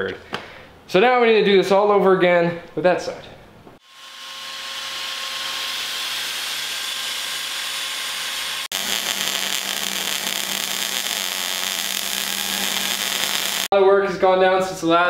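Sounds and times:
low welder hum: 0:03.8 - 0:13.7
rotary tool sanding metal: 0:03.8 - 0:13.7
welding hiss: 0:03.8 - 0:13.7.

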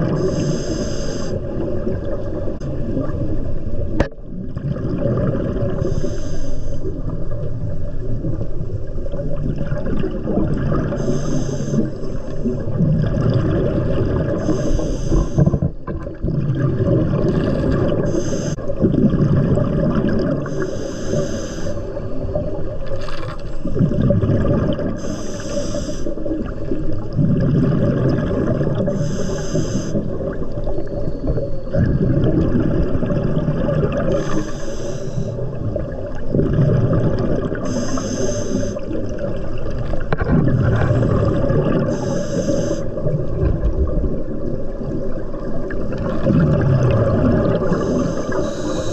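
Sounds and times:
exhaled bubbles gurgling: 0:00.0 - 0:48.9
regulator inhalation hiss: 0:00.2 - 0:01.4, 0:05.8 - 0:06.9, 0:11.0 - 0:12.2, 0:14.4 - 0:15.6, 0:18.1 - 0:18.6, 0:20.5 - 0:21.9, 0:25.0 - 0:26.2, 0:28.9 - 0:30.0, 0:34.1 - 0:35.4, 0:37.6 - 0:39.0, 0:41.9 - 0:43.0, 0:47.7 - 0:48.9.

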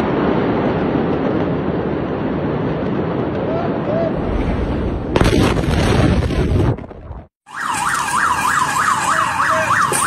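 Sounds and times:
explosion blast wave rush: 0:00.0 - 0:07.3
emergency siren yelping: 0:07.4 - 0:10.0.

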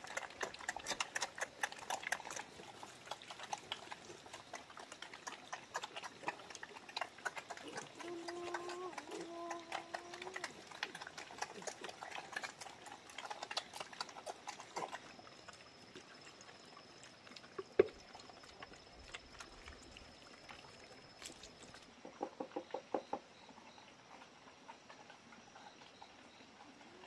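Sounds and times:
pigs chomping: 0:00.0 - 0:21.9.

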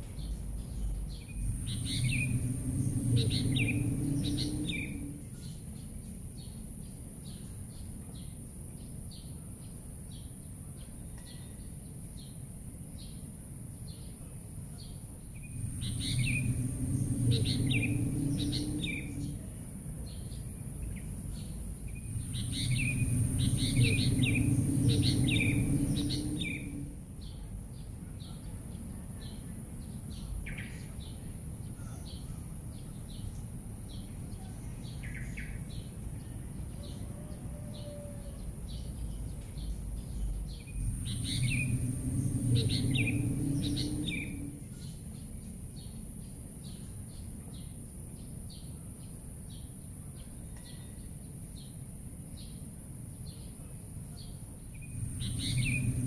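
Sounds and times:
low rumble: 0:00.0 - 0:07.2, 0:15.0 - 0:31.8, 0:32.6 - 0:46.6, 0:54.4 - 0:56.0
birds chirping: 0:00.0 - 0:08.3, 0:14.8 - 0:46.0, 0:54.2 - 0:56.0
steady high-pitched hiss: 0:00.0 - 0:56.0.

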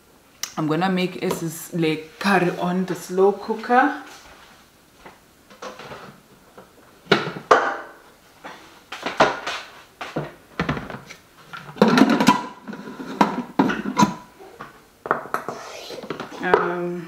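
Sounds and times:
kitchen items knocking and clinking: 0:11.7 - 0:14.3.

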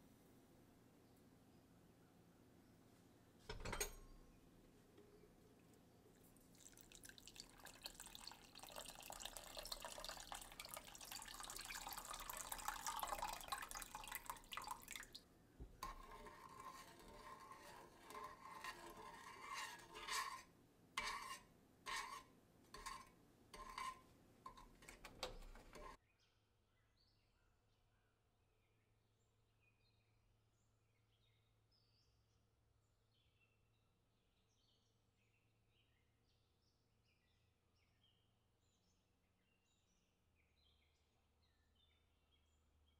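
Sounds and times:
liquid pouring into bowl: 0:06.2 - 0:15.2, 0:15.8 - 0:20.4
wet mixing strokes: 0:06.2 - 0:15.2, 0:15.8 - 0:26.0.

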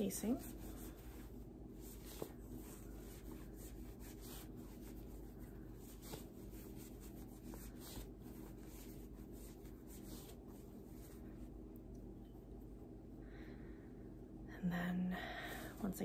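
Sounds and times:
fabric rustling and rubbing: 0:00.0 - 0:11.6.

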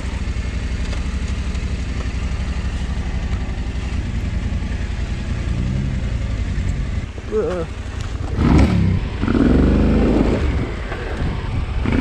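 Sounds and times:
motorcycle engine at low revs: 0:00.0 - 0:12.0.

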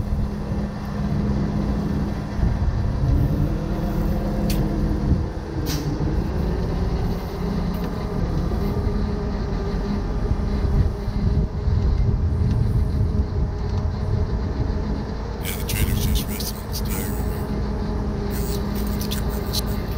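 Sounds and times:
wind buffeting microphone: 0:00.0 - 0:16.4
diesel truck engine running: 0:00.0 - 0:19.9.

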